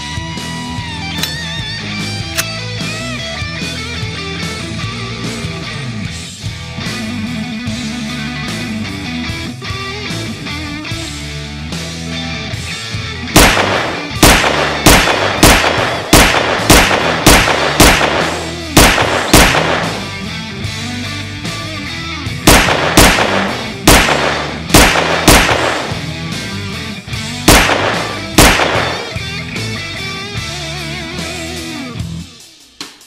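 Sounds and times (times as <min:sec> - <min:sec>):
rock music: 0:00.0 - 0:33.0
pistol gunshots: 0:13.4 - 0:20.4, 0:22.4 - 0:26.4, 0:27.4 - 0:29.6.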